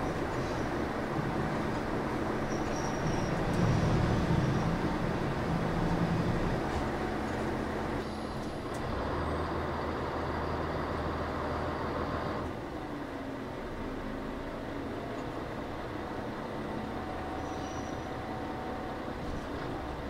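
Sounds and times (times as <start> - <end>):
diesel railcar engine hum: 0.0 - 20.0.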